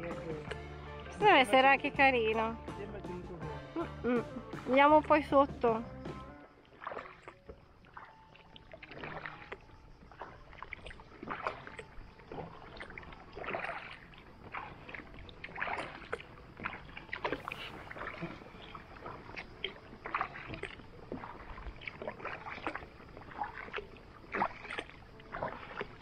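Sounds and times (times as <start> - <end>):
paddle splashing in water: 0.0 - 26.0.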